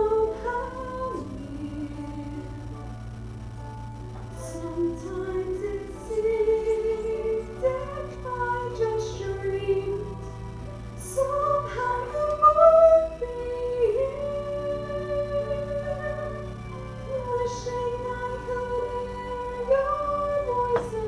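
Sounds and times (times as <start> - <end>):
woman singing a ballad: 0.0 - 2.6, 11.0 - 16.5, 17.1 - 21.0
soft accompaniment chords: 0.0 - 21.0.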